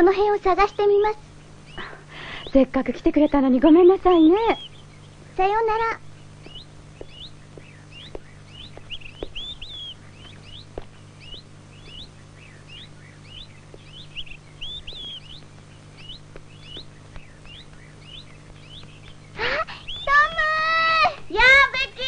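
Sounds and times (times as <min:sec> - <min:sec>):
faint steady low hum: 0:00.0 - 0:22.0
small birds chirping: 0:00.0 - 0:22.0.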